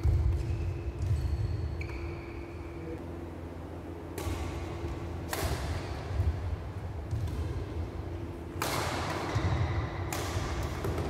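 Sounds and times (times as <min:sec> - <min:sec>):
racket hitting shuttlecock: 0:04.0 - 0:11.0.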